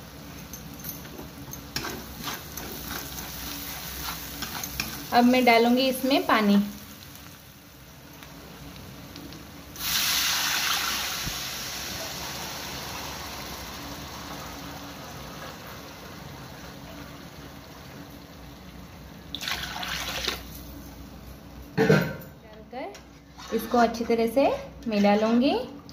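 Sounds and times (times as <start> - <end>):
spatula stirring: 1.6 - 5.4, 23.2 - 25.5
water hissing in hot pan: 2.0 - 20.5.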